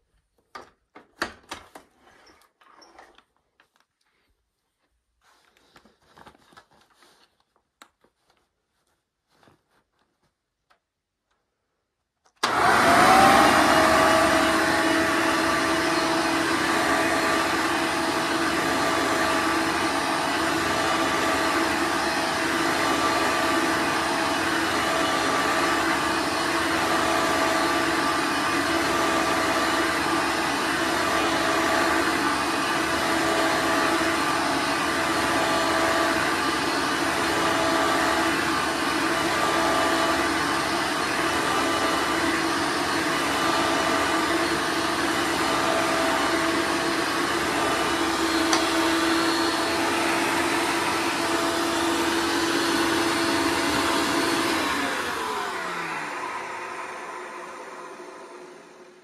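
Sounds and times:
vacuum cleaner running on carpet: 0:12.4 - 0:59.0.

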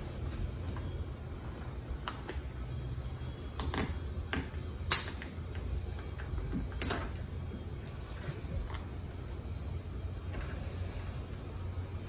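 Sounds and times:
sharp snap: 0:04.9 - 0:05.3.

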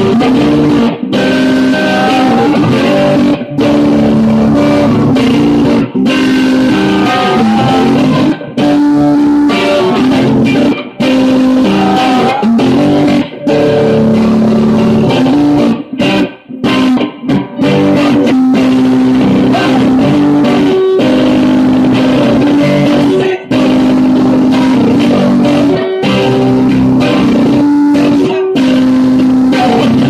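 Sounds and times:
electric guitar: 0:00.0 - 0:30.0
man singing loudly: 0:11.6 - 0:12.7, 0:19.3 - 0:20.6, 0:29.5 - 0:30.0.

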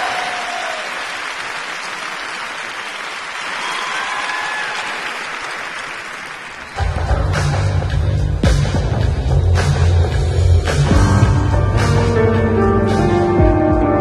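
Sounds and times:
crowd applauding: 0:00.0 - 0:07.0
music with heavy low bass: 0:06.8 - 0:14.0.

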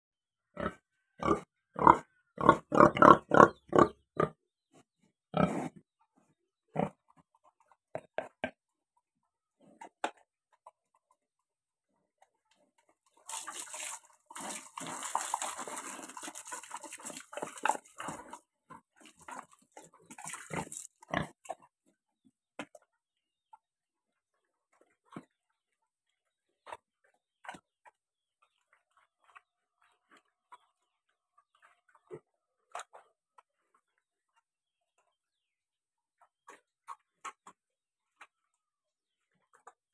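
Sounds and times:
pigs grunting and snuffling: 0:00.5 - 0:08.6, 0:09.4 - 0:23.5, 0:24.3 - 0:39.9
water splashing into trough: 0:13.2 - 0:18.4, 0:20.1 - 0:20.9.

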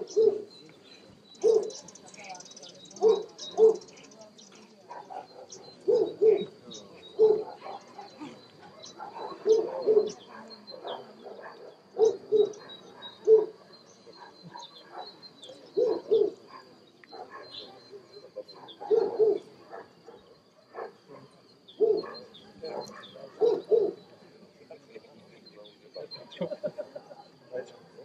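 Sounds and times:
dog barking: 0:00.0 - 0:00.5, 0:01.4 - 0:01.8, 0:03.0 - 0:03.9, 0:04.9 - 0:06.5, 0:07.1 - 0:17.8, 0:18.4 - 0:24.0.

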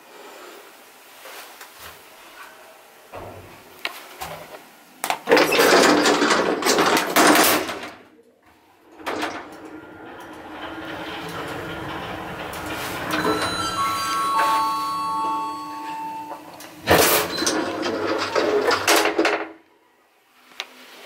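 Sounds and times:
elevator doors sliding shut: 0:03.2 - 0:03.7, 0:05.3 - 0:08.0, 0:08.7 - 0:19.5
elevator drive humming: 0:08.6 - 0:19.2.

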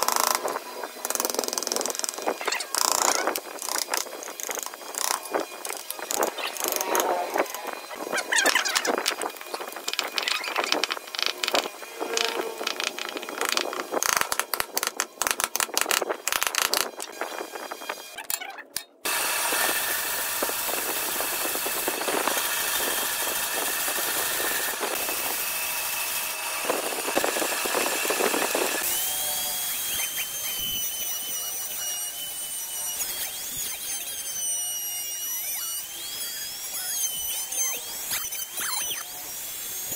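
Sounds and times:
bandsaw cutting wood: 0:00.0 - 0:39.9
electric router whining: 0:00.0 - 0:39.9
chisel knocking and scraping wood: 0:08.6 - 0:17.1.

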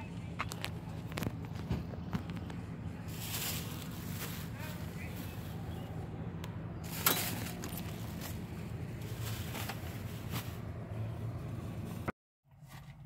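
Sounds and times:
things being handled: 0:06.8 - 0:10.8.

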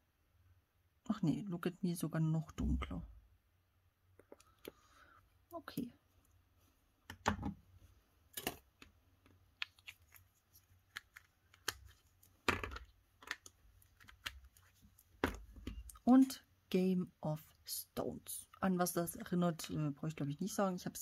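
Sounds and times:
plastic bottle clicks and knocks: 0:07.1 - 0:07.6, 0:12.4 - 0:13.4, 0:15.2 - 0:15.9.

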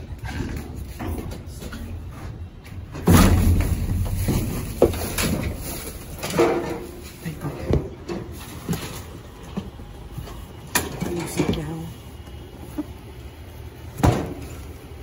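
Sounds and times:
plastic bags rustling: 0:03.1 - 0:09.4.

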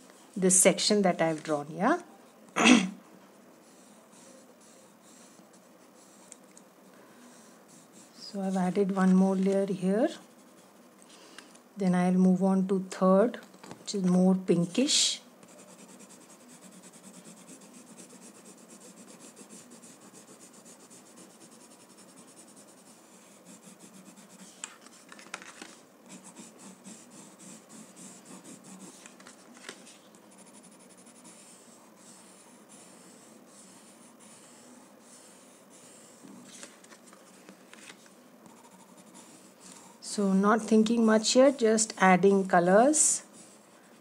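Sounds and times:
pencil scratching on paper: 0:03.6 - 0:06.4, 0:07.2 - 0:10.9, 0:15.4 - 0:25.1, 0:26.0 - 0:36.5, 0:38.4 - 0:40.0.

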